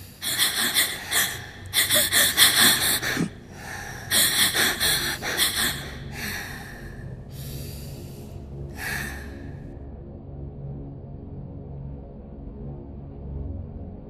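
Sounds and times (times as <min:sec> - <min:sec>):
person panting: 0:00.0 - 0:09.6.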